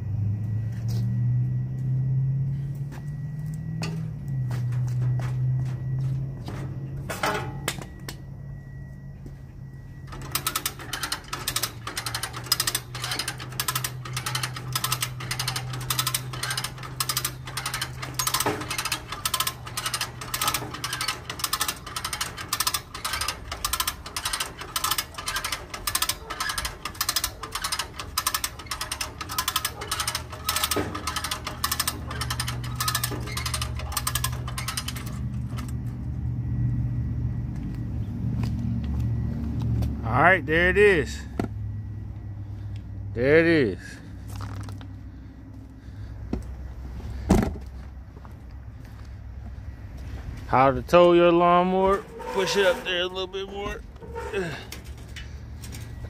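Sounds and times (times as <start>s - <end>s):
cable winch ratchet clicking: 10.1s - 35.8s.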